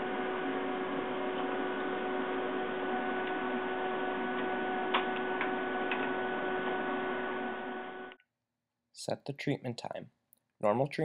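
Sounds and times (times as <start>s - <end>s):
cooling fan humming: 0.0s - 8.2s.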